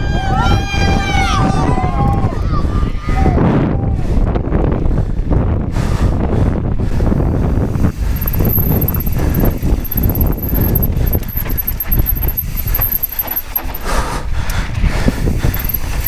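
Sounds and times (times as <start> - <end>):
wind on microphone: 0.0 - 16.0
bike tyres on loose dirt: 7.8 - 14.0, 14.6 - 16.0.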